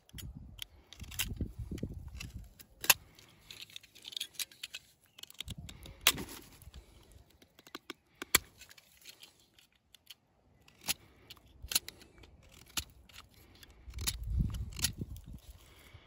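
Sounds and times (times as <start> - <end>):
pruning shears snipping twigs: 0.0 - 15.5.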